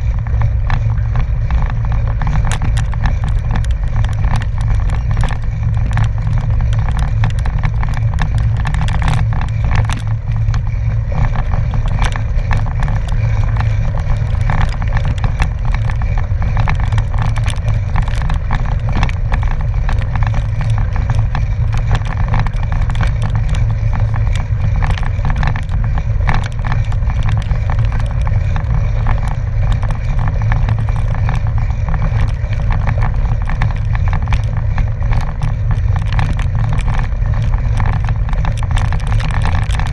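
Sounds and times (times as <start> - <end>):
bicycle tyres rumbling on gravel: 0.0 - 39.9
gravel and bike rattles: 0.0 - 39.9.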